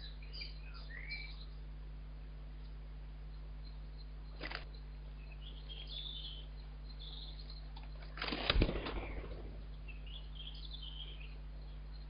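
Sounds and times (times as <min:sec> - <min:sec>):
faint high bird chirps: 0:00.0 - 0:01.8, 0:02.6 - 0:12.0
steady low hum: 0:00.0 - 0:12.0
bird wingbeats: 0:07.9 - 0:09.7.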